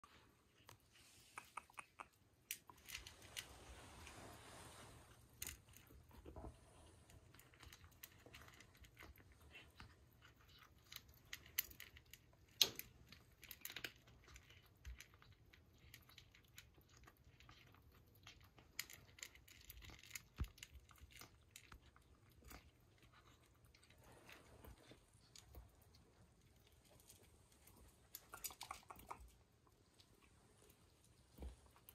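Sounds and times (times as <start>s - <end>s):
kittens chewing food: 0.0s - 31.9s.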